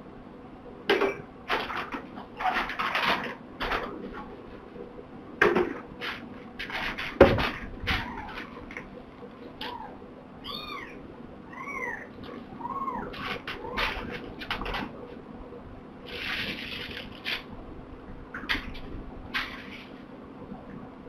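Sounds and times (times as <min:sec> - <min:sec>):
kitten mewing: 0:09.6 - 0:13.8.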